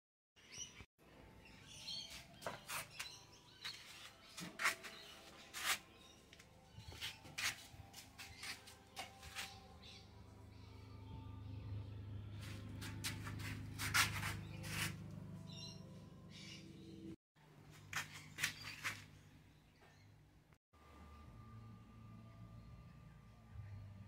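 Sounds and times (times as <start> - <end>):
birds chirping: 0.4 - 17.2.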